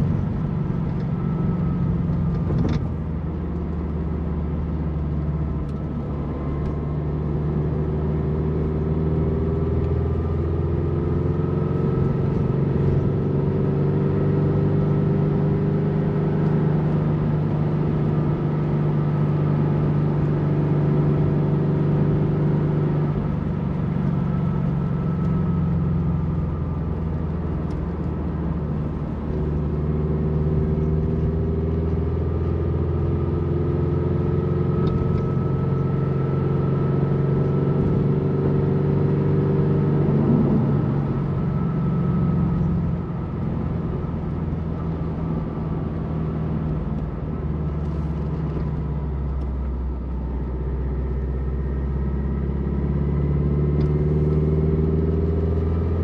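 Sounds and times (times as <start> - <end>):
car engine while driving: 0.0 - 56.0
tyre and road noise: 37.2 - 52.1.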